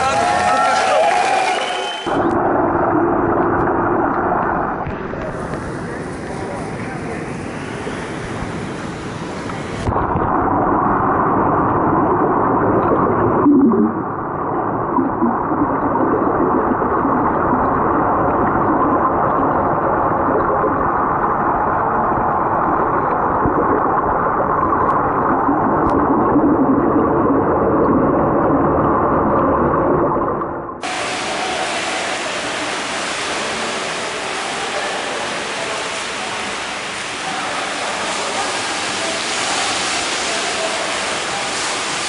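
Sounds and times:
muffled underwater rushing: 0.0 - 42.0
swimmers splashing water: 30.8 - 42.0.

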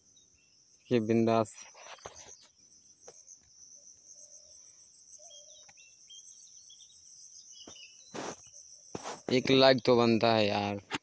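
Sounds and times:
short bird chirps: 0.8 - 9.4.

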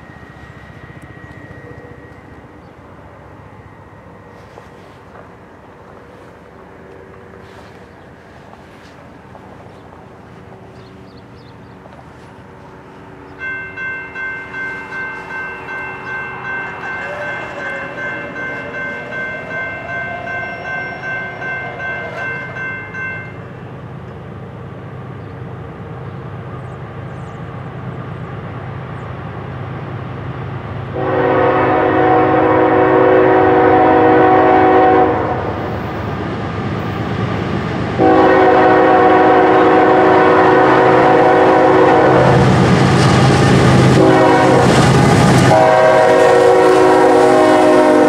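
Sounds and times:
locomotive bell dinging: 0.0 - 5.6, 12.6 - 24.0
diesel locomotive rumbling: 0.0 - 48.0
locomotive air horn: 16.7 - 22.3, 30.9 - 35.8, 38.0 - 42.6, 43.8 - 48.0.

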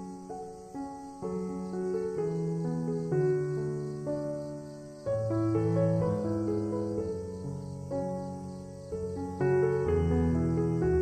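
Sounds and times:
instrumental music with sustained notes: 0.0 - 11.0.

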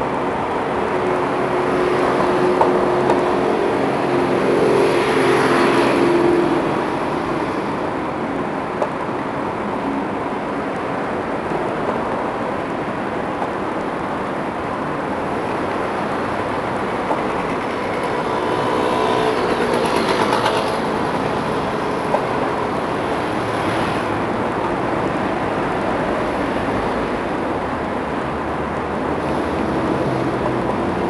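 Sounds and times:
city street traffic: 0.0 - 31.0
vehicle passing: 17.5 - 22.0.

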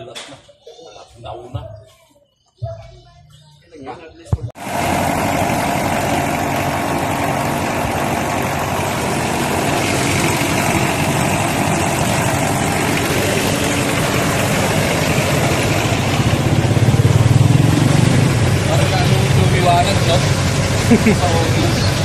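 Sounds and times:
engine idling: 4.6 - 22.0.

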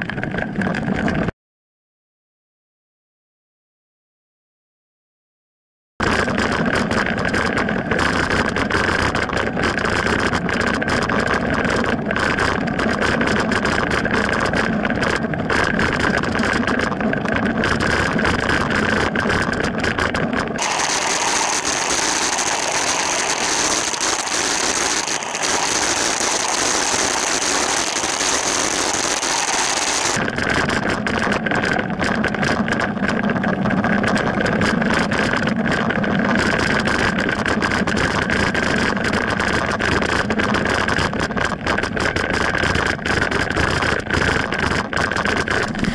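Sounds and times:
road and wind noise: 6.5 - 43.2
car engine: 20.6 - 30.2.

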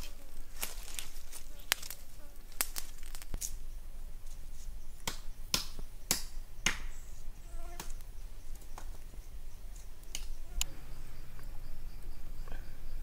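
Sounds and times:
wood fire crackling and popping: 1.7 - 3.6.

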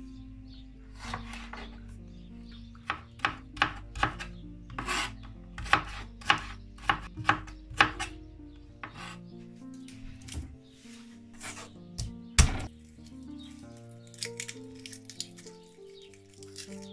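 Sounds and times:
soft background music: 0.0 - 16.9
knife chopping on cutting board: 1.0 - 1.7, 2.8 - 8.1, 8.8 - 9.2, 11.4 - 12.7.

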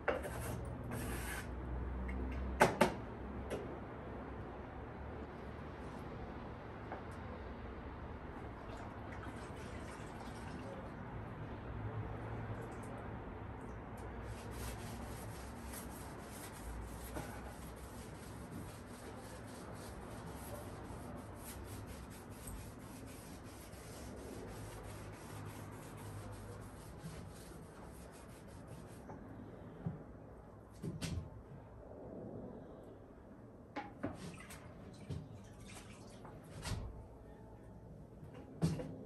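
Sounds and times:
cloth scrubbing a surface: 14.2 - 29.1.

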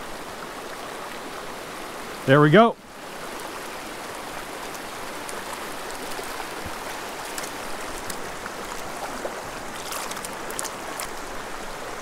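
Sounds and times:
creek water rushing: 0.0 - 12.0
faint light ticks: 4.6 - 8.8.

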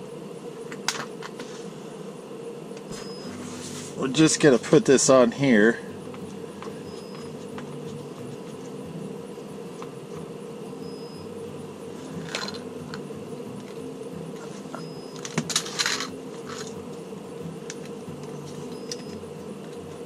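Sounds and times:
steady low hum: 0.0 - 20.0
hose rubbing and clattering: 2.9 - 4.2, 14.4 - 16.9.

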